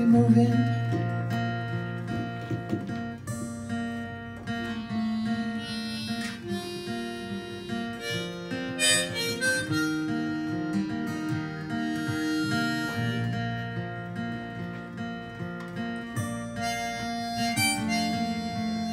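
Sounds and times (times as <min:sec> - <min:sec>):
strummed acoustic guitar: 0:00.0 - 0:18.9
harmonica solo: 0:03.9 - 0:18.9.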